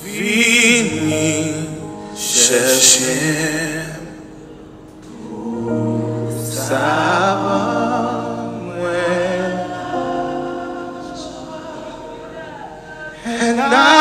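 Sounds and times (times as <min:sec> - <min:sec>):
held instrumental chords: 0:01.0 - 0:14.0
person singing with vibrato: 0:05.1 - 0:14.0.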